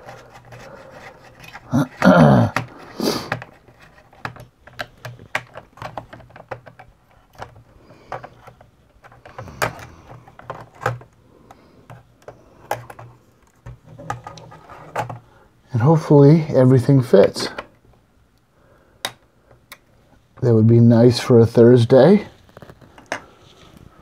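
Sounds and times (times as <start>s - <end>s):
small clicks and knocks in laptop: 3.3s - 11.1s.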